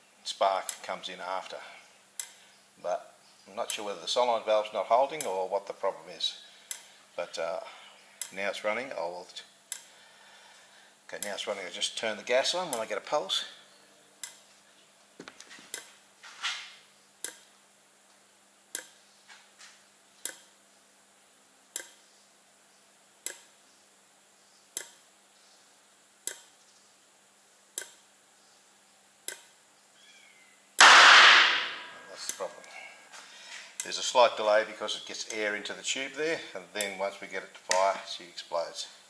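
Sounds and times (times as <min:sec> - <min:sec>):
loud gas detonation bang: 0:30.8 - 0:32.1.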